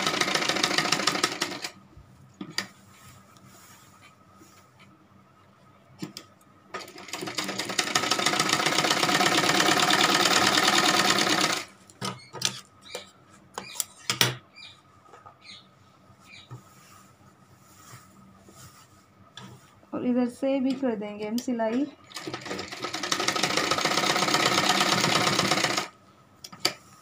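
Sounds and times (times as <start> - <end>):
sewing machine stitching: 0.0 - 1.8, 6.8 - 11.7, 22.0 - 25.9.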